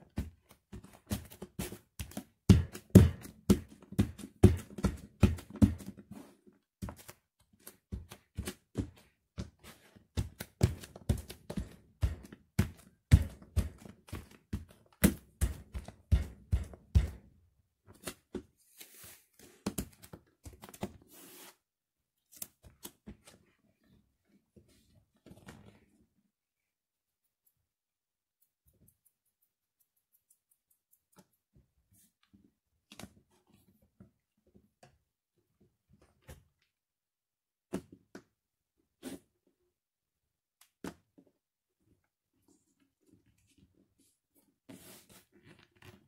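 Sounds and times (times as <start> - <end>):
bare feet stomping on bread: 0.1 - 6.0, 10.2 - 17.3.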